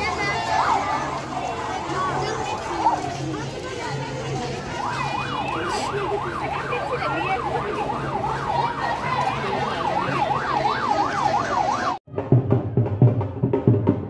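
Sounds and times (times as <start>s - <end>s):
crowd chatter: 0.0s - 12.9s
vehicle siren: 4.3s - 12.0s
loud drum beats: 12.1s - 14.0s.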